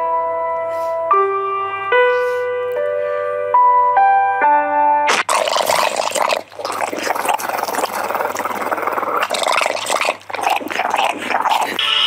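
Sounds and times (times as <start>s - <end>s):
dog making rattling vocalizations: 6.5s - 11.8s.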